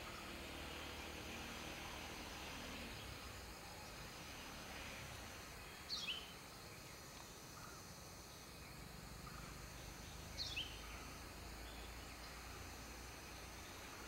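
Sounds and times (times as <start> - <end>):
faint background hiss: 0.0 - 14.0
sunbird calls: 5.6 - 14.0.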